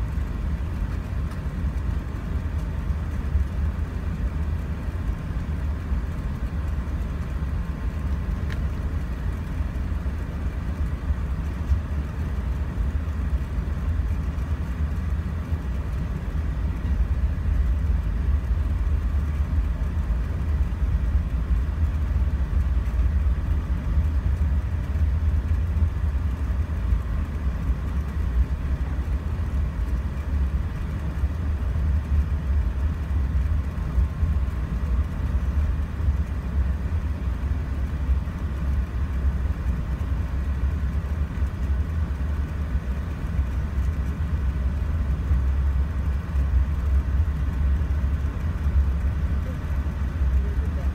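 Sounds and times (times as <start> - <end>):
aircraft cabin low rumble: 0.0 - 50.9
faint steady whine: 0.0 - 50.9.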